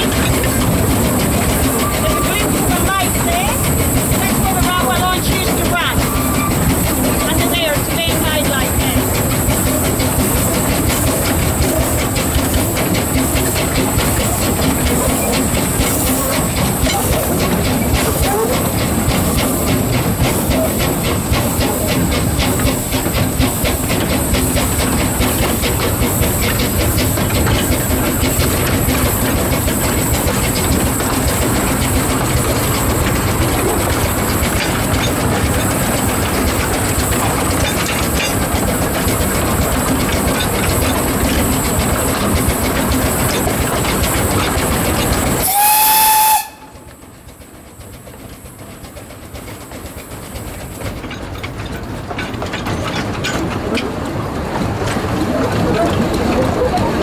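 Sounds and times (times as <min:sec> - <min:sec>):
steam locomotive chuffing: 0:00.0 - 0:57.0
wheels clattering on rails: 0:00.0 - 0:57.0
steam whistle blast: 0:45.4 - 0:46.8.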